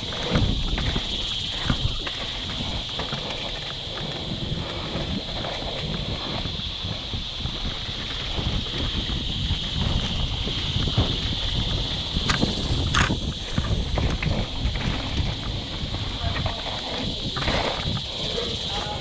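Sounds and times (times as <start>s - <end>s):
bike rattling and knocking: 0.0s - 19.0s
tyres rumbling on dirt: 0.0s - 19.0s
wind buffeting microphone: 0.0s - 19.0s.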